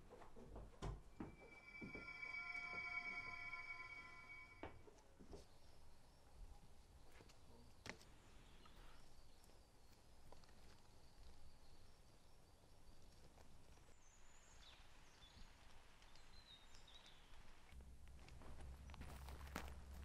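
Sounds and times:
faint forest ambience: 0:01.0 - 0:20.0
soft high bird chirps: 0:01.1 - 0:04.7.

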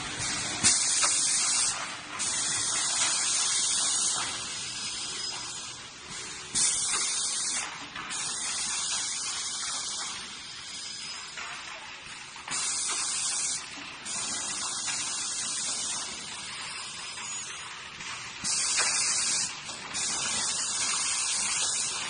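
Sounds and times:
compressed air hissing: 0:06.5 - 0:10.0, 0:18.4 - 0:22.0.

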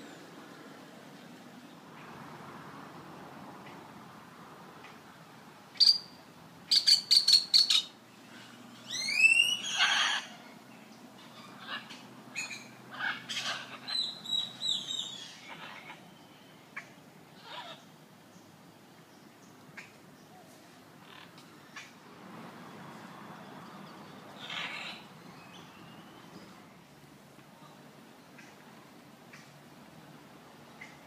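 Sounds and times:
macaws squawking: 0:08.9 - 0:10.5, 0:11.2 - 0:16.1, 0:24.4 - 0:25.2.

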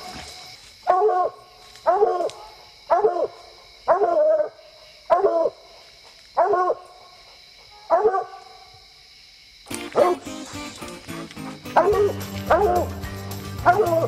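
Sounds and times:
dog barking: 0:00.8 - 0:05.6, 0:06.4 - 0:06.8, 0:07.7 - 0:08.7, 0:09.9 - 0:10.3, 0:11.7 - 0:13.0, 0:13.6 - 0:14.0.

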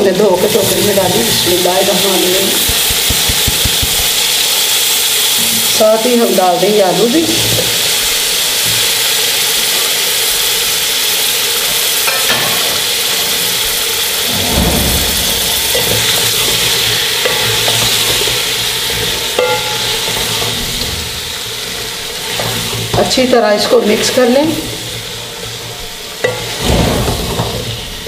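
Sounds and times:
vegetables sizzling in pot: 0:00.0 - 0:28.0
spatula stirring: 0:02.2 - 0:04.3, 0:15.7 - 0:20.5.

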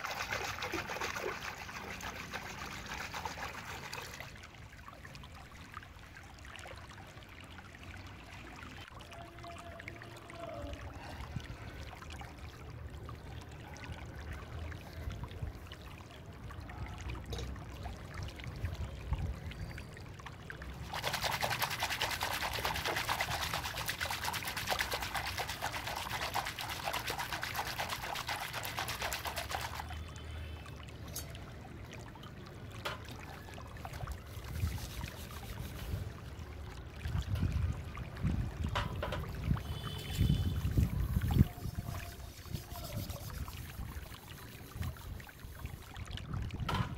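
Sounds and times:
hands splashing water in basin: 0:00.0 - 0:04.2, 0:20.8 - 0:29.9.

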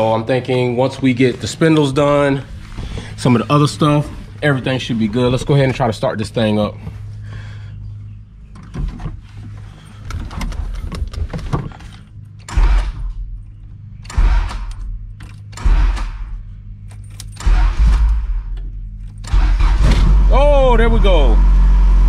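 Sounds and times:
keys jingling: 0:16.8 - 0:17.4
starter cranking engine: 0:17.3 - 0:20.4.

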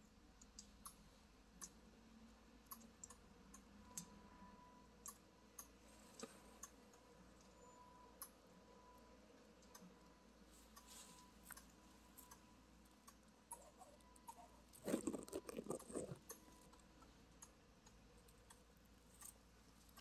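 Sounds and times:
soft rapid crackling rustle: 0:10.5 - 0:20.0.

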